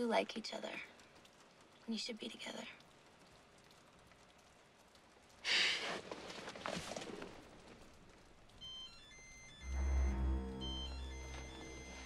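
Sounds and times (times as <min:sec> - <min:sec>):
breathing: 0:05.4 - 0:06.0
clothing rustling: 0:05.9 - 0:07.9
high music notes: 0:08.6 - 0:12.0.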